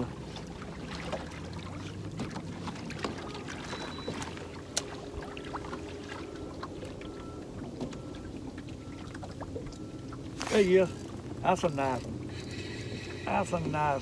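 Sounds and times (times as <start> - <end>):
boat engine hum: 0.0 - 14.0
short high beeps: 3.6 - 4.2.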